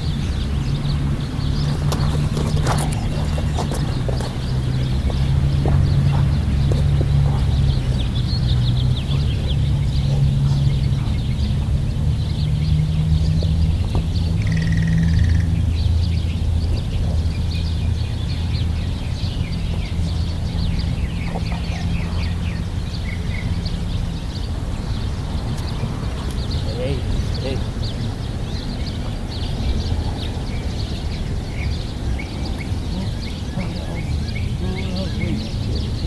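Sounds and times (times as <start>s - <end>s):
steady low rumble: 0.0s - 32.9s
birds chirping: 0.0s - 36.0s.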